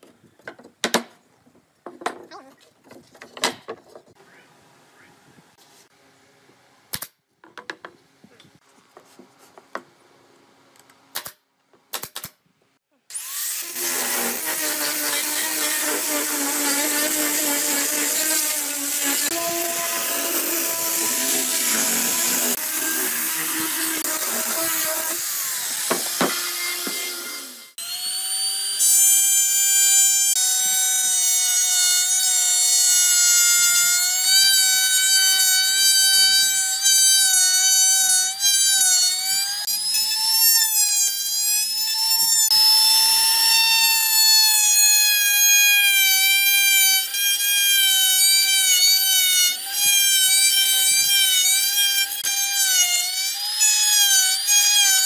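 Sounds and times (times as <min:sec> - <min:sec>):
nail gun shots: 0:06.9 - 0:07.2, 0:11.1 - 0:12.4
power sander on wood: 0:13.1 - 0:55.0
router cutting with high whine: 0:13.1 - 0:55.0.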